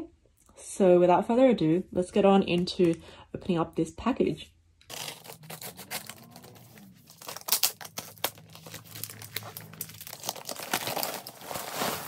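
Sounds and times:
plastic bag crinkling and tearing: 4.9s - 12.0s.

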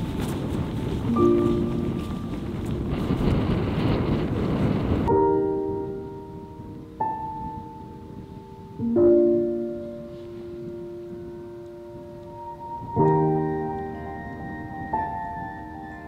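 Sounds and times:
rush of noise: 0.0s - 8.3s
slow piano music: 0.0s - 16.0s.

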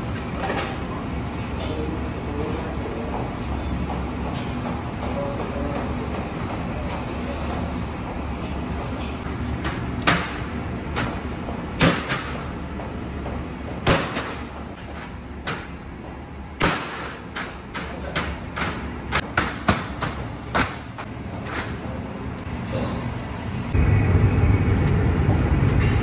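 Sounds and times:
steady low hum: 0.0s - 26.0s
noodle dough slapping on steel table: 9.6s - 11.2s, 11.8s - 12.5s, 13.8s - 15.8s, 16.6s - 21.0s.

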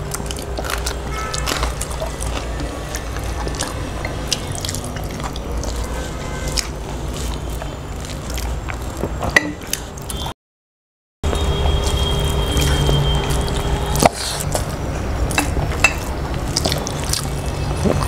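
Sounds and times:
low steady hum: 0.0s - 10.3s
wet chewing and lip smacking: 0.0s - 10.3s, 11.3s - 18.0s
fingers squishing rice: 11.7s - 18.0s
sharp mouth clicks: 12.6s - 18.0s.

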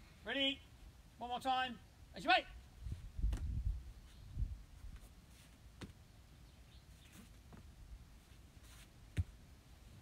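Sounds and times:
bare foot thud on mats: 9.1s - 9.4s.

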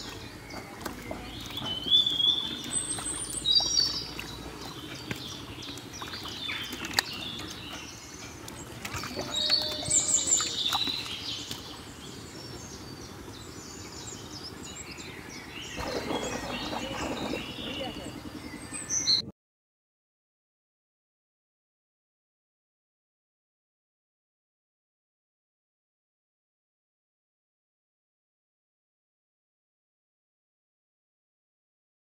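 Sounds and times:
birds chirping: 0.0s - 19.3s
light splashing in water: 15.8s - 18.2s.

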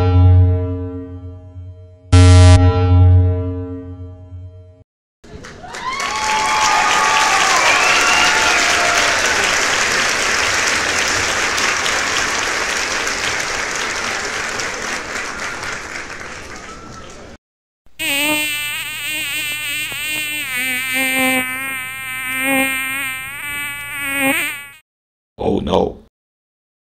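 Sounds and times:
pitched buzzing: 2.2s - 2.6s, 17.9s - 24.8s
crowd applause: 5.2s - 17.4s.

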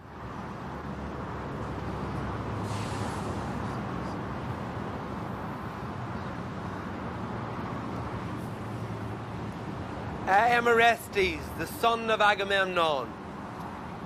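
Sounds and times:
heavy vehicle engine running: 0.0s - 6.0s
air hiss: 2.6s - 3.8s.

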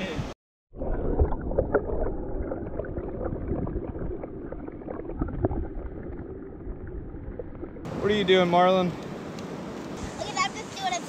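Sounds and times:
muffled underwater surf rumble: 0.7s - 8.3s.

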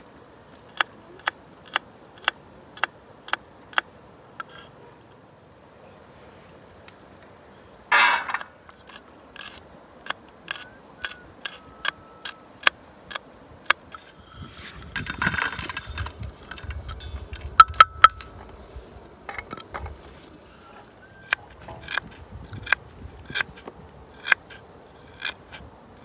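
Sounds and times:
scraping rustle: 13.8s - 25.7s
metal utensils clinking: 14.0s - 18.1s.

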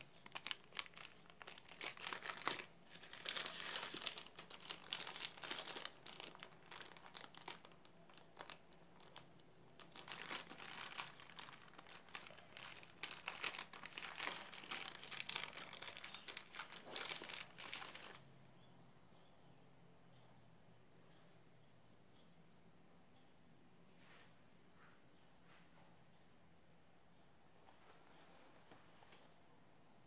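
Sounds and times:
plastic bag and paper crinkling: 0.0s - 18.2s.

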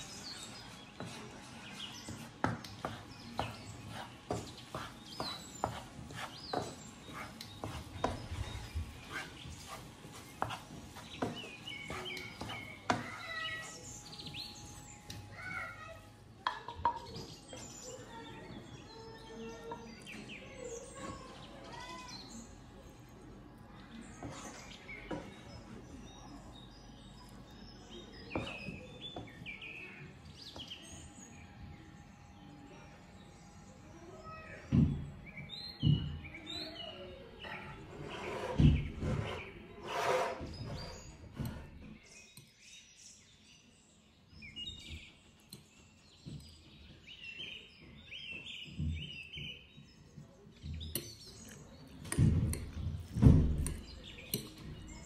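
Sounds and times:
small birds chirping: 0.0s - 55.0s
wooden spatula scraping a pan: 0.1s - 13.4s, 37.5s - 41.8s.

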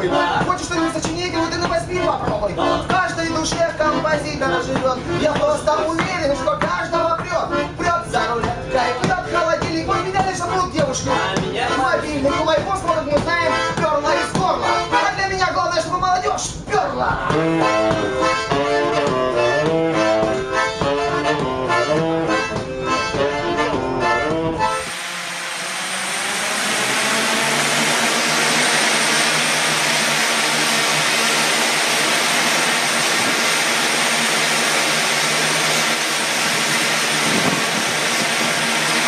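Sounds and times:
accordion: 0.0s - 39.0s
saxophone: 17.2s - 31.1s
propellers whirring: 17.3s - 39.0s.

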